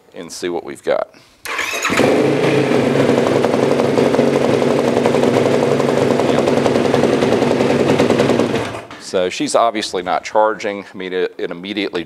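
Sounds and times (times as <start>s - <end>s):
engine idling: 1.5s - 9.0s.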